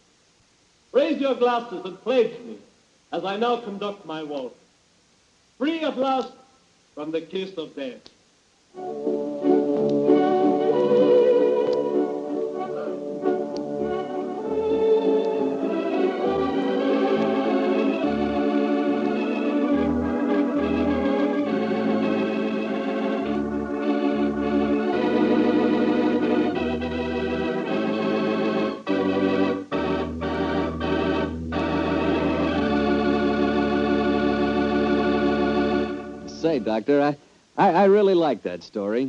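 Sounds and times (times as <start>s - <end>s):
organ chords: 8.6s - 39.0s.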